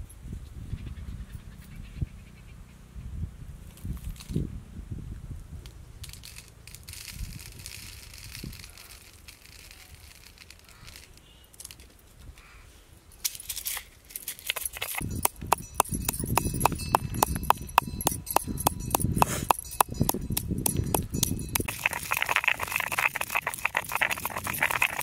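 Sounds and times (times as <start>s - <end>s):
pestle pounding in stone mortar: 14.8s - 25.0s.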